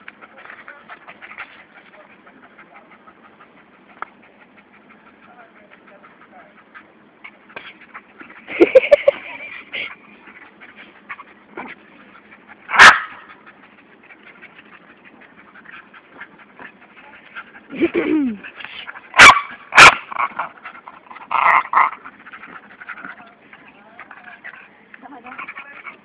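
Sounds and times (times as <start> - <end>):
dog barking: 12.8 - 13.2, 19.2 - 20.0.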